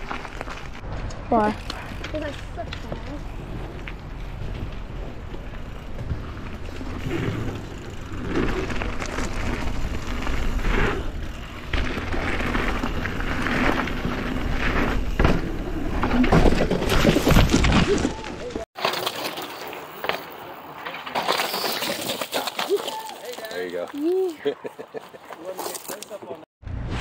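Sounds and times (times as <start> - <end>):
bike rattling: 0.0 - 24.4
bike tyres on dirt trail: 0.0 - 27.0
bike knocking over bumps: 11.6 - 18.2.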